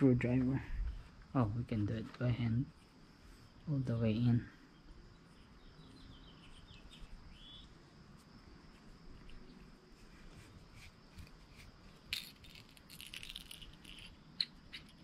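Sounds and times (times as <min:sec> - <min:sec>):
high insect trill: 0:00.0 - 0:15.0
bird chirps: 0:04.6 - 0:07.8.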